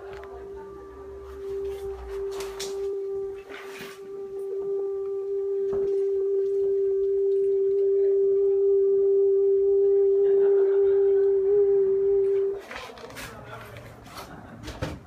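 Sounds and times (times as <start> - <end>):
steady low tone: 0.0 - 12.6.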